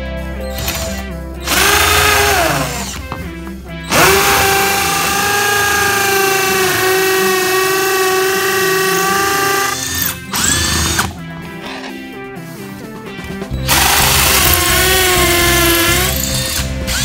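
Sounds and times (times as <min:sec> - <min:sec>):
hammer drill whining: 0:00.5 - 0:03.2, 0:03.9 - 0:11.2, 0:13.6 - 0:17.0.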